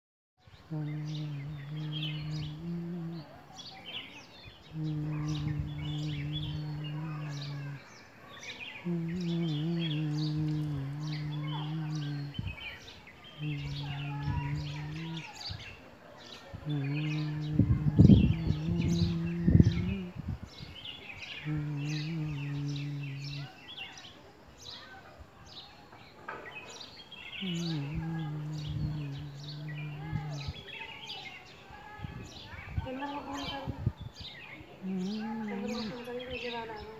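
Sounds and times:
birds chirping: 0:00.4 - 0:36.9
loud low droning tone: 0:04.8 - 0:07.8, 0:21.5 - 0:23.4, 0:27.5 - 0:30.6.

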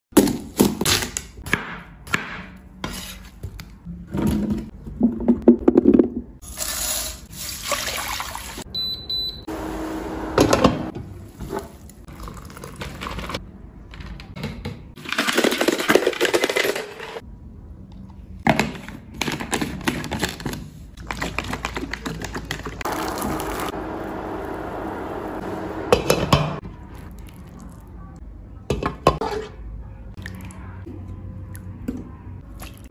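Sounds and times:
liquid pouring and splashing: 0:07.5 - 0:08.6.

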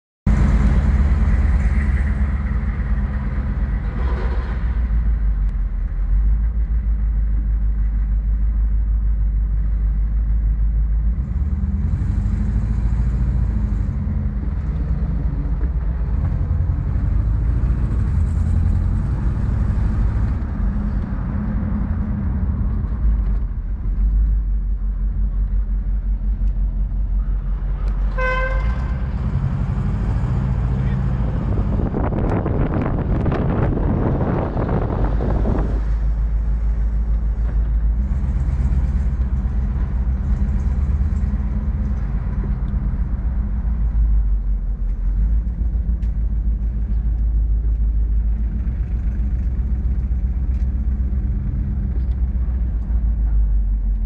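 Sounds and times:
road noise: 0:00.2 - 0:54.0
car engine rumble: 0:00.3 - 0:54.0
car horn toot: 0:28.1 - 0:29.0.

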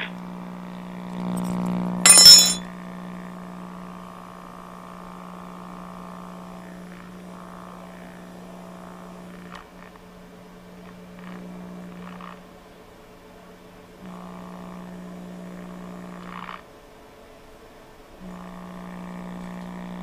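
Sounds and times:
buzzy mains hum from radio speaker: 0:00.0 - 0:02.0, 0:03.0 - 0:12.6, 0:13.2 - 0:16.7, 0:18.0 - 0:20.0
sharp clink: 0:02.1 - 0:02.6.

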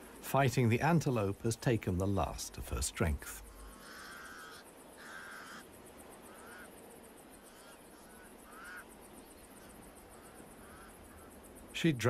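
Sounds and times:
crows calling: 0:03.2 - 0:11.7.

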